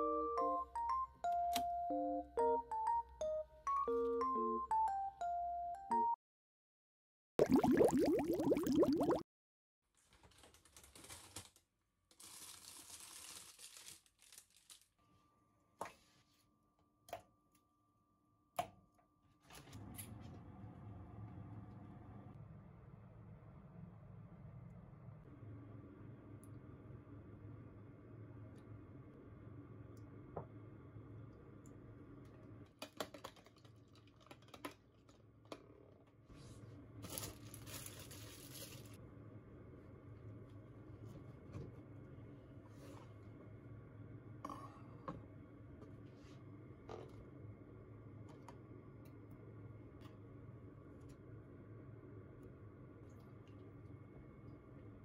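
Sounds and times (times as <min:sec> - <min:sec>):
plastic bag crinkling: 0:10.1 - 0:15.0, 0:37.0 - 0:39.0.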